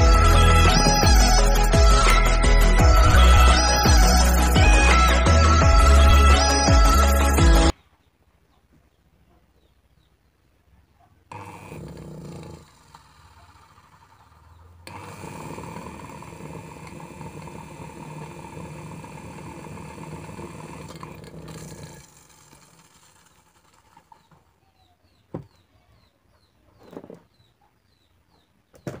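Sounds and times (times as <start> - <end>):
table fan motor humming: 0.0 - 7.7, 11.3 - 24.9
soft knocks: 25.3 - 25.6.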